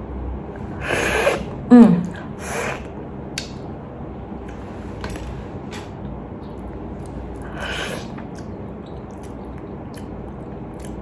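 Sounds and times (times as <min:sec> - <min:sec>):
person humming: 0:01.7 - 0:02.3
quiet chewing: 0:04.5 - 0:11.0.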